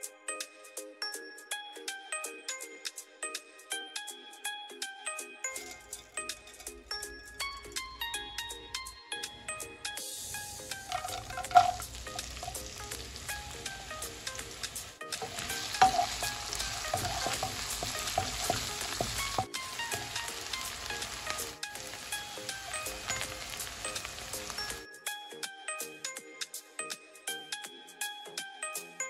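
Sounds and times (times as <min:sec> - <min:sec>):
onions sizzling in oil: 0:10.0 - 0:24.8
wooden spatula scraping pan: 0:10.3 - 0:24.8.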